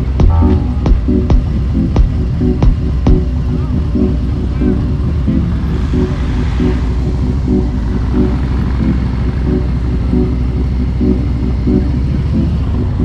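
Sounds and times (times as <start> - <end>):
motorcycle engine rumbling: 0.0 - 13.0.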